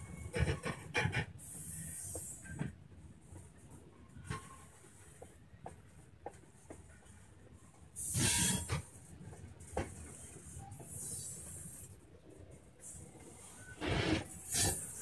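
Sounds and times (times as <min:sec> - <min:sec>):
train wheels clicking over rail joints: 0:00.2 - 0:03.6
hiss: 0:01.4 - 0:02.6, 0:08.0 - 0:08.7, 0:12.8 - 0:15.0.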